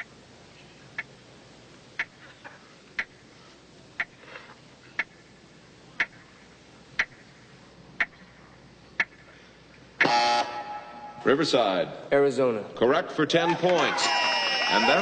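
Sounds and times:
clock ticking: 1.0 - 1.2, 1.9 - 2.2, 3.0 - 3.2, 4.0 - 4.2, 5.0 - 5.3, 6.0 - 6.3, 7.0 - 7.3, 8.0 - 8.4, 9.0 - 9.3.

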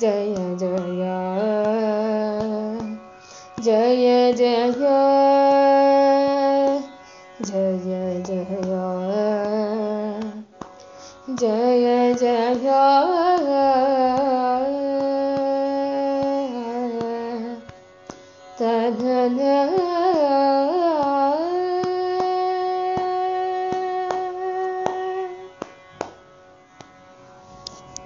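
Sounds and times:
woman singing devotional song: 0.0 - 17.8, 18.6 - 25.7.

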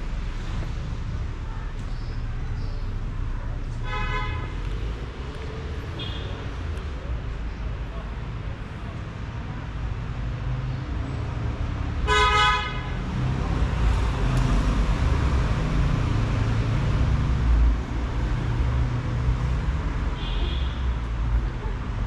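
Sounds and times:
street traffic rumble: 0.0 - 22.0
car horn toot: 3.8 - 4.6, 12.1 - 12.9.

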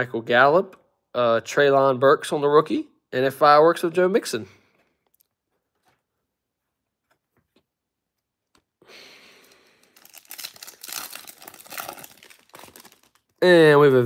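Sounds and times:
cards being handled: 9.5 - 13.4
foil wrapper tearing and crinkling: 9.5 - 13.4.

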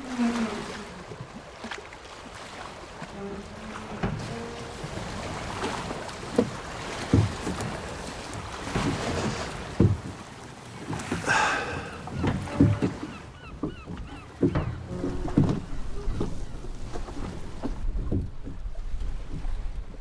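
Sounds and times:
choppy water: 0.0 - 20.0
wind: 0.0 - 20.0
oars knocking in oarlocks: 3.8 - 19.6.

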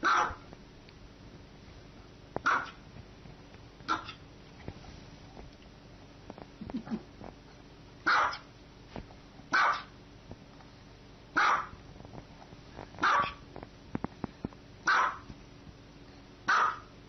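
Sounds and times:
small dog barking: 0.0 - 0.4, 2.4 - 2.8, 3.9 - 4.2, 8.0 - 8.5, 9.5 - 10.0, 11.4 - 11.8, 13.0 - 13.4, 14.8 - 15.3, 16.5 - 16.9.

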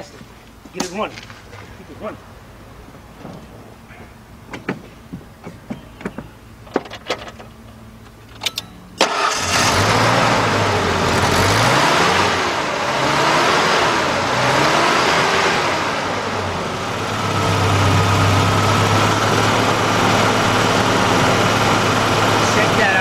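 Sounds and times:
engine revving and idling: 9.0 - 23.0.

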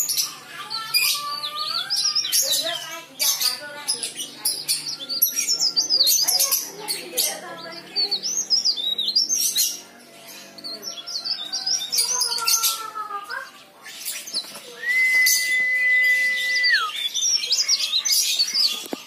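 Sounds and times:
bird twittering chirps: 0.0 - 19.0.

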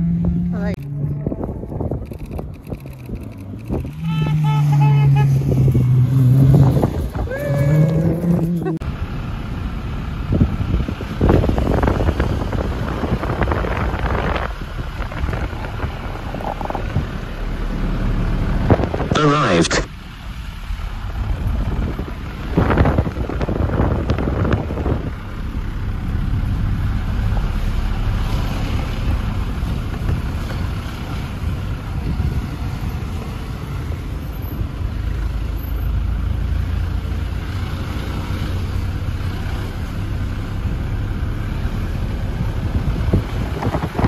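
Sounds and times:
wind buffeting microphone: 0.0 - 4.4, 5.3 - 8.8, 10.1 - 19.2, 21.0 - 33.6, 40.0 - 44.0.

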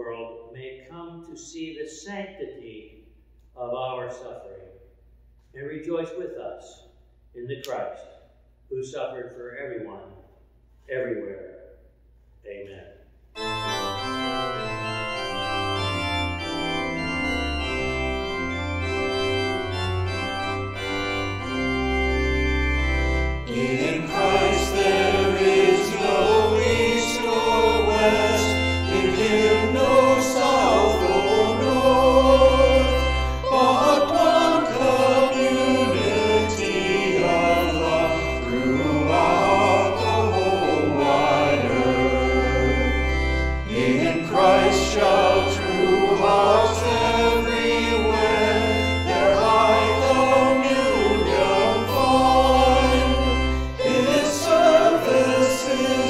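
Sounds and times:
organ playing sustained chords: 13.3 - 56.0
voices singing: 23.4 - 56.0.

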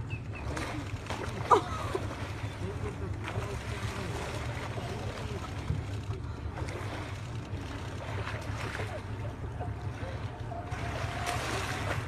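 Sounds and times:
boat engine running: 0.0 - 12.0
faint voices: 0.4 - 12.0.

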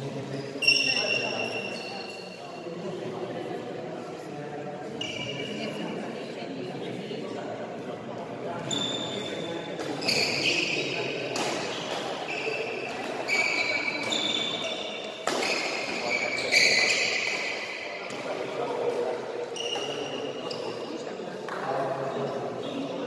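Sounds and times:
shoes squeaking on court floor: 0.1 - 2.4, 4.9 - 5.8, 8.6 - 21.1
racket striking shuttlecock: 11.3 - 18.3.

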